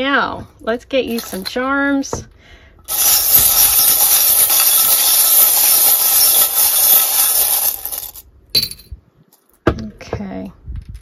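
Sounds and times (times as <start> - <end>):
small charms rattling: 2.9 - 8.2.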